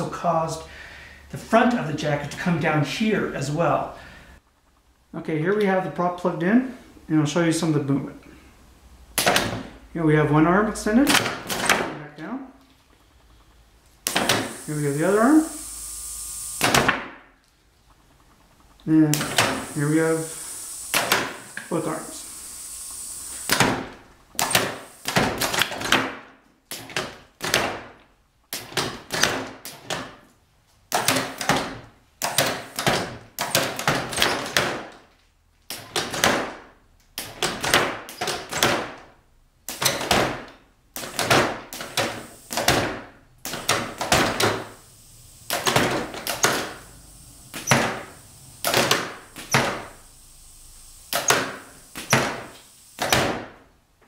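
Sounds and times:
pneumatic cylinder knocks: 14.1s - 14.6s, 16.6s - 17.2s, 19.2s - 21.7s, 23.3s - 26.2s, 31.0s - 34.8s, 39.7s - 44.7s, 45.5s - 46.8s, 47.5s - 50.0s, 51.1s - 53.6s.

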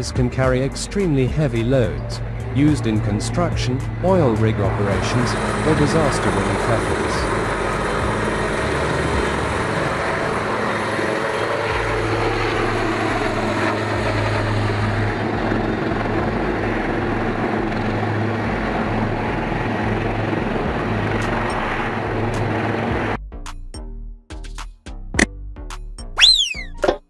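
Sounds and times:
helicopter flying past: 0.0s - 23.2s
faint descending tone: 26.2s - 27.0s.

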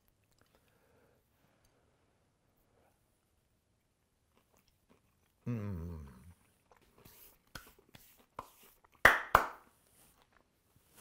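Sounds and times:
man's appreciative mmm: 5.4s - 6.4s.

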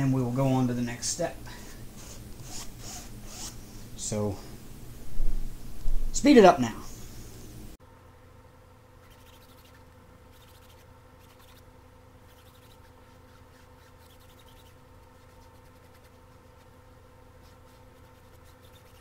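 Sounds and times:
low electrical hum: 0.0s - 19.0s
foam brush rubbing: 1.6s - 4.0s, 9.0s - 19.0s.

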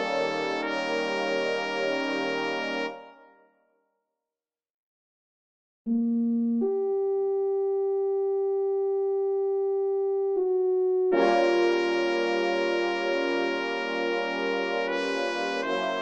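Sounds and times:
brass ensemble sustained chord: 0.0s - 3.3s, 11.1s - 16.0s
soft brass line: 0.0s - 3.5s, 11.1s - 16.0s.

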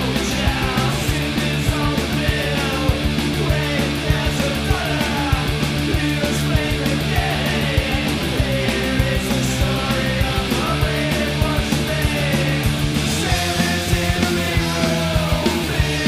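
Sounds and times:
electric guitars: 0.0s - 16.0s
fast drum beat: 0.0s - 16.0s.

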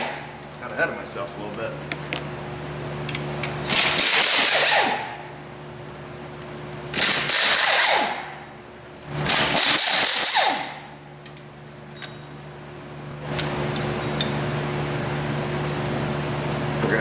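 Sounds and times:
pneumatic air ratchet running: 3.6s - 5.3s, 6.9s - 8.4s, 9.2s - 10.9s.

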